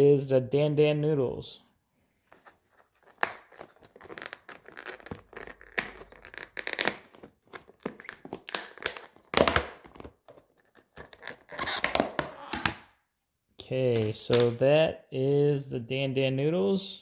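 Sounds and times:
plastic lid crackling: 2.8s - 12.9s.

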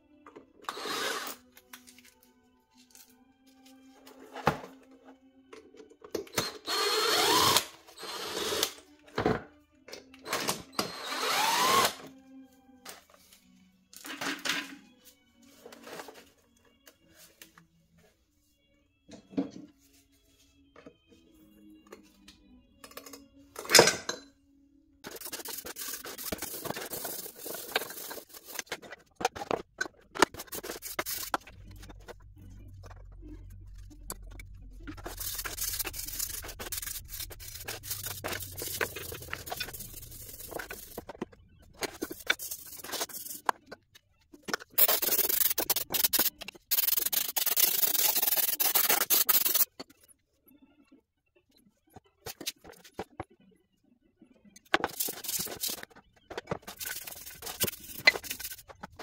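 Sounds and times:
brush scrubbing metal: 35.0s - 41.0s.

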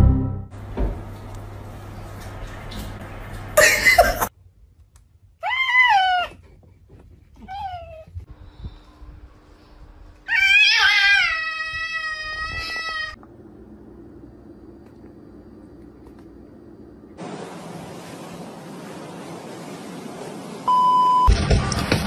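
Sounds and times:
cat yowling: 5.4s - 6.4s, 10.3s - 13.2s.

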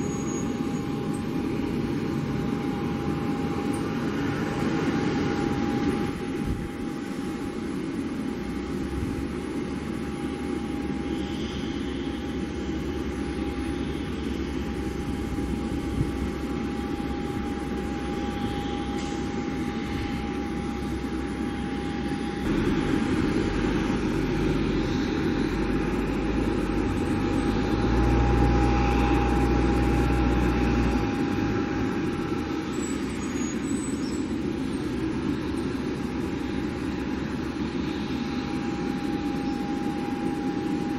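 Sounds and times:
distant jet engines whining: 0.0s - 40.9s
low rumble: 11.9s - 32.6s.

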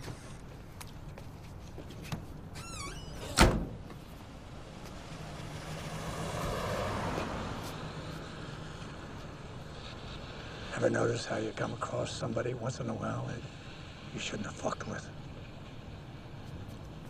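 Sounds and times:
street noise hum: 0.0s - 17.0s
door hinges squeaking: 2.5s - 3.8s
truck door slamming: 2.8s - 4.0s.

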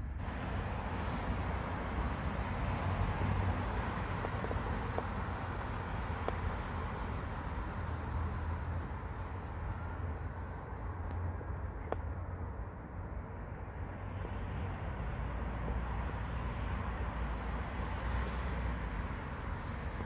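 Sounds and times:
distant road traffic hum: 0.0s - 20.0s.

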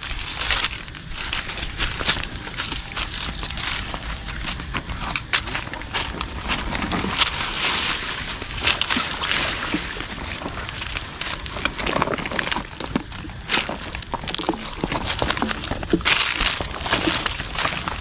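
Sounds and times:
footsteps through dry grass: 0.0s - 18.0s
twigs crackling: 0.0s - 18.0s.

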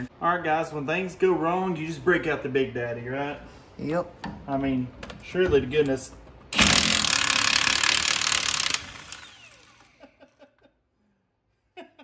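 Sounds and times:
impact wrench hammering: 6.5s - 9.9s.

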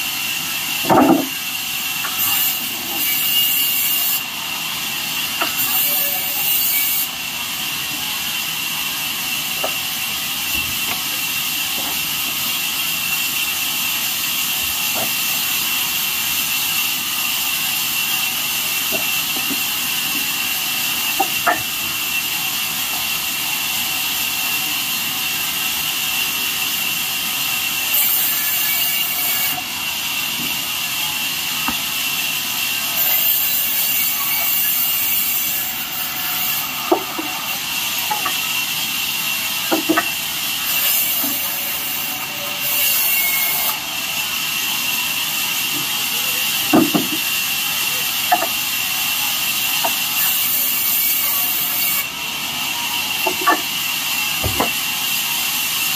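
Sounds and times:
small knocks of wood: 0.8s - 1.4s, 54.4s - 54.8s.

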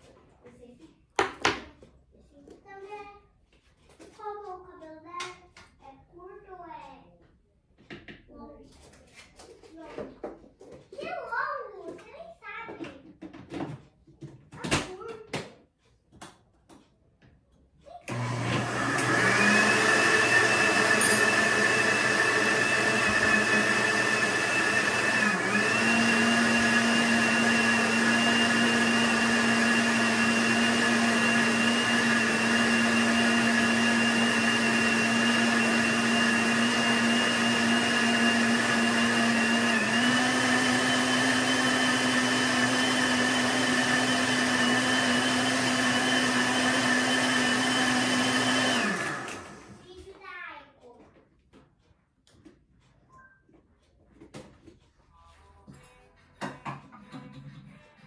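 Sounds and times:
blender motor whine: 18.1s - 49.8s.

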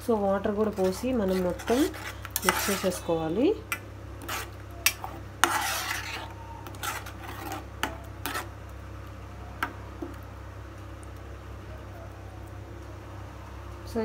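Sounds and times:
spoon scraping pan bottom: 0.6s - 3.1s, 3.7s - 8.5s.

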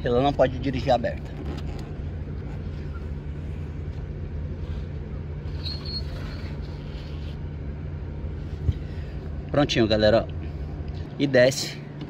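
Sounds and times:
low machine hum: 0.0s - 12.0s
high squeak: 5.5s - 7.3s.

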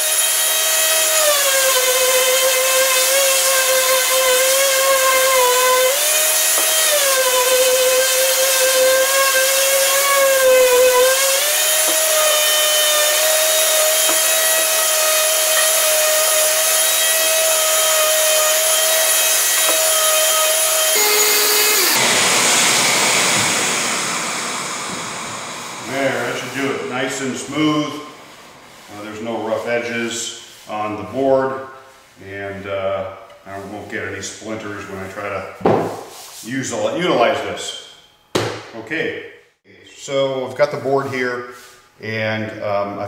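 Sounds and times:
electric sander whining: 0.0s - 24.6s.

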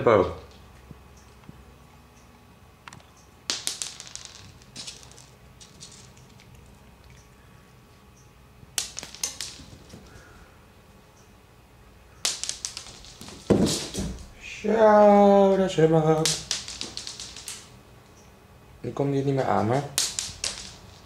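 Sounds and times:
kibble skittering on a hard floor: 3.0s - 7.4s, 8.7s - 10.4s, 12.2s - 14.6s, 15.3s - 17.8s, 19.4s - 21.0s.

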